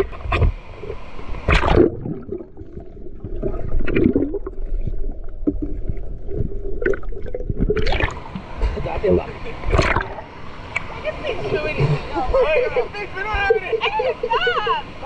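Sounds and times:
water splash: 0.0 - 8.8, 9.6 - 12.2
underwater gurgling and bubbling: 0.0 - 10.4.

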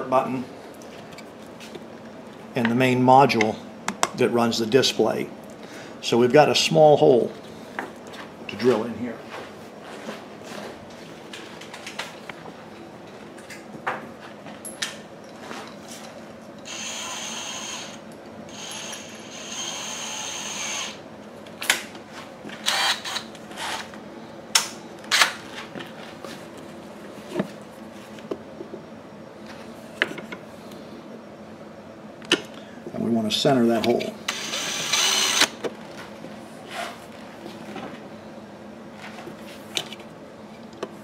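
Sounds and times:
cordless drill motor running: 16.6 - 21.0, 22.6 - 23.9, 34.3 - 35.6.

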